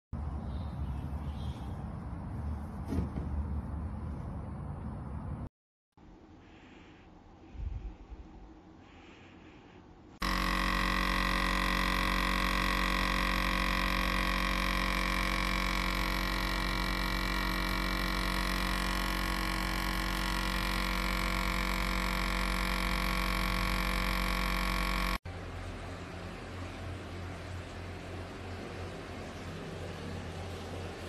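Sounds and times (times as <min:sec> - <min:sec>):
coffee machine pump buzzing: 0:10.2 - 0:25.3.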